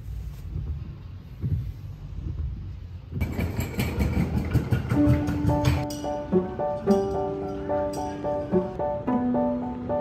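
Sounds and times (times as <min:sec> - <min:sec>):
busy indoor ambience: 0:00.0 - 0:10.0
soft bumps: 0:00.2 - 0:03.3.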